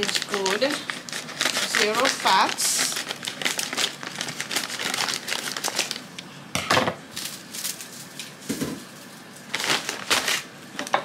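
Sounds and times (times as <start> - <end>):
plastic packaging crinkling: 0.0 - 6.3, 7.1 - 10.9.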